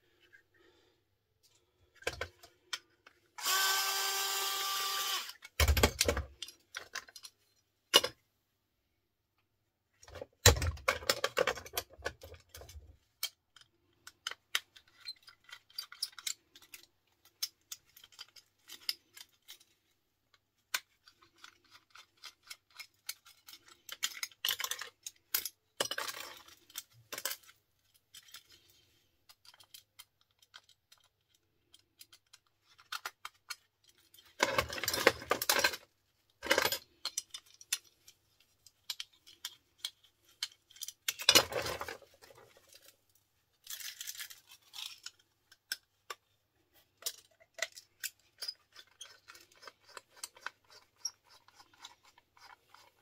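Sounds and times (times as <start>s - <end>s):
plastic and metal parts clicking: 5.0s - 8.2s, 10.0s - 53.0s
parts rattling: 10.1s - 53.0s.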